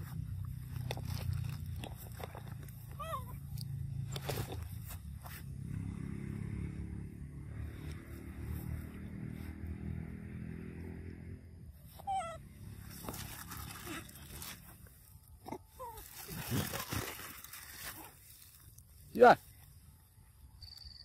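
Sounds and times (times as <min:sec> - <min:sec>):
monkeys squeaking and squealing: 0:02.9 - 0:03.5, 0:12.0 - 0:12.4.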